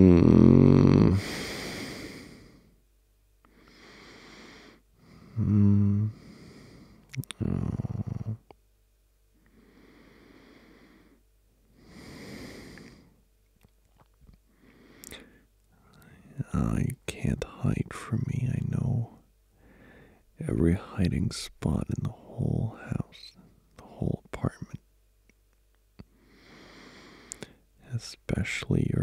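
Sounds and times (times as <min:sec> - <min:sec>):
man breathing slowly: 0:01.1 - 0:02.8, 0:03.4 - 0:07.1, 0:09.4 - 0:13.2, 0:14.5 - 0:16.2, 0:19.5 - 0:20.3, 0:26.1 - 0:27.7
soft mouth clicks: 0:07.1 - 0:07.4, 0:13.5 - 0:14.4, 0:15.0 - 0:15.2, 0:27.3 - 0:27.5.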